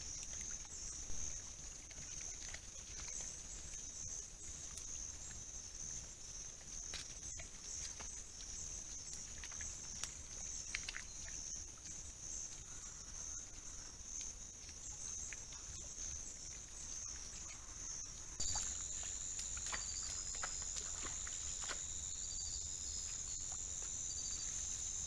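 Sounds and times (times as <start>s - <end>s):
animals rustling through dry grass: 18.4s - 25.0s
high-pitched insect drone: 18.4s - 25.0s.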